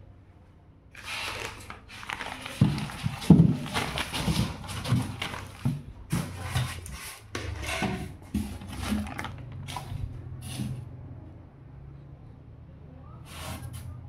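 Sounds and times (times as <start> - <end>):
newspaper rustling and crinkling: 1.0 - 7.2, 8.3 - 10.0.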